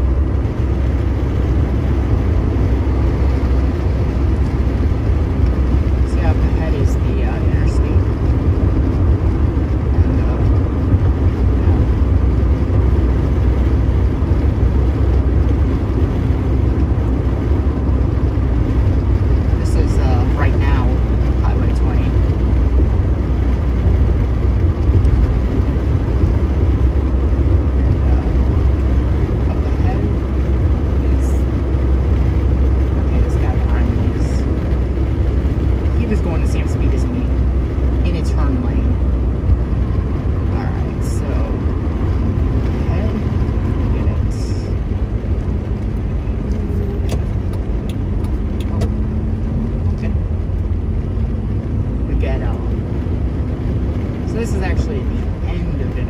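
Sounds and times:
pickup truck driving: 0:00.0 - 0:56.0
road and engine rumble in cabin: 0:00.0 - 0:56.0.

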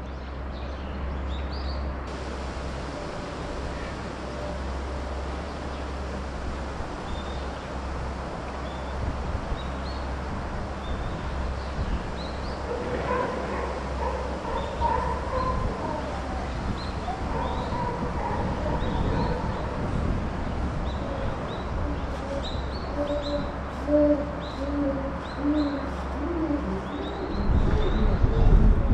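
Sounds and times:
steady low hum: 0:01.9 - 0:28.9
chimpanzee calls: 0:21.1 - 0:28.2.

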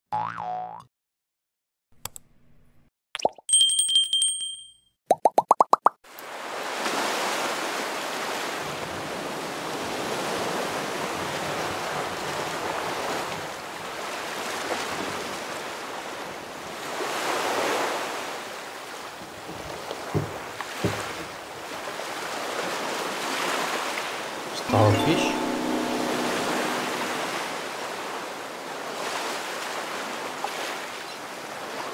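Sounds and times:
ocean waves washing in: 0:21.8 - 0:31.0
rising jingle tones: 0:24.6 - 0:27.9.

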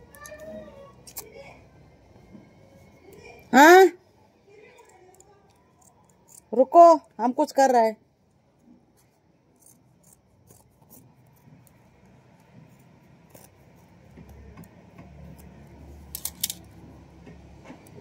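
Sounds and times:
scissors snipping fabric: 0:09.6 - 0:16.6.

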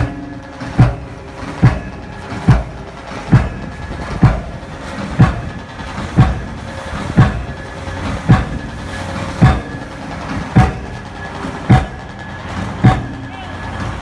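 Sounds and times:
pile-driving hammer striking piling: 0:00.0 - 0:14.0
steady drone of machinery: 0:00.0 - 0:14.0.

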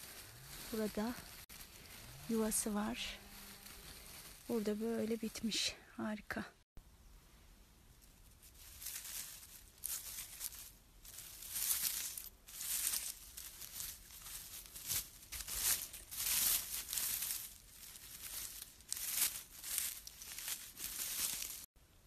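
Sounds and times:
pine needles rustling and crackling: 0:00.0 - 0:05.6, 0:07.9 - 0:21.7.

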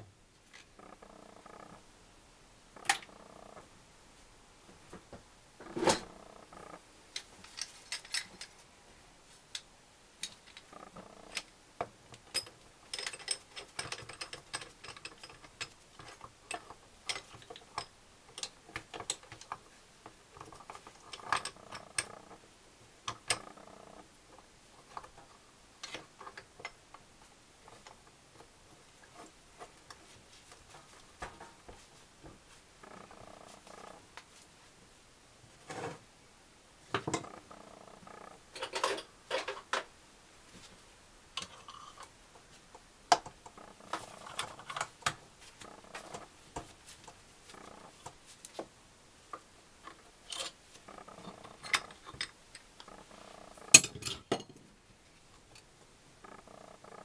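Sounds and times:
metal tools clinking on engine parts: 0:53.7 - 0:54.6.

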